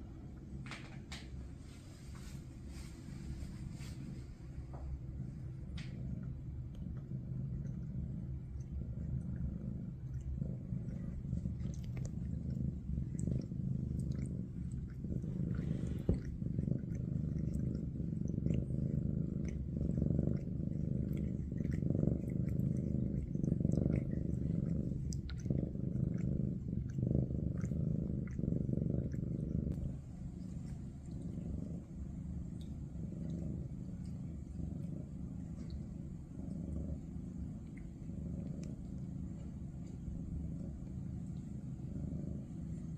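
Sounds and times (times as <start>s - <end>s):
cat purring: 0.0s - 42.9s.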